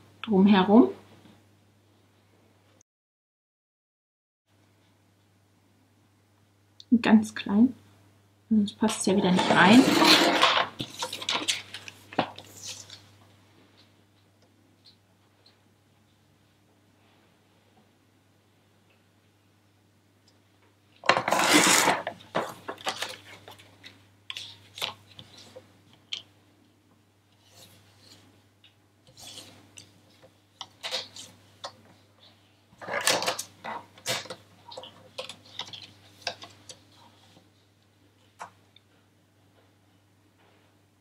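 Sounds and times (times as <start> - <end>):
paper trimmer cutting laminated sheet: 21.1 - 22.1.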